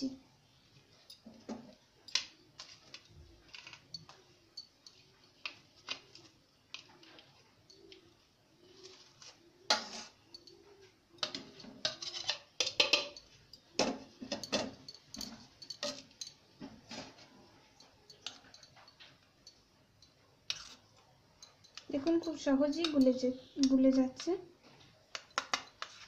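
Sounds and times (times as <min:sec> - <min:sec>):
spoon clinking against steel bowl: 0:09.8 - 0:24.3.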